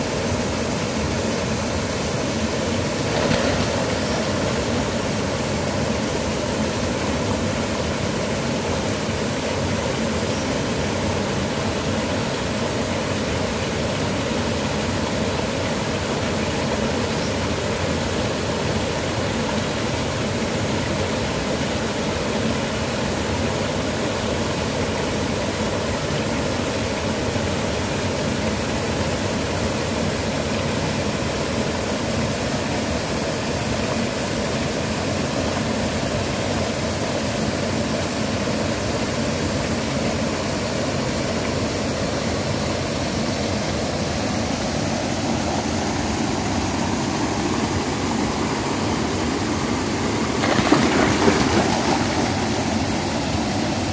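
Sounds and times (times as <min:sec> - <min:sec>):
waterfall rushing: 0:00.0 - 0:16.6, 0:43.6 - 0:53.9.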